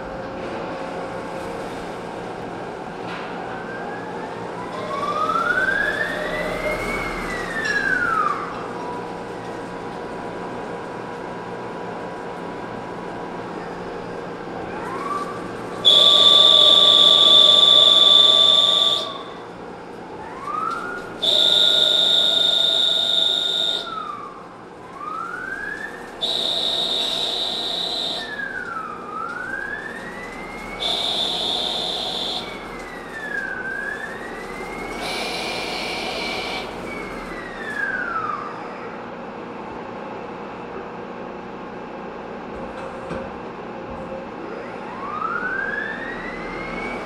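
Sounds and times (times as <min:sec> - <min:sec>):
lathe motor whine: 0:13.5 - 0:38.9.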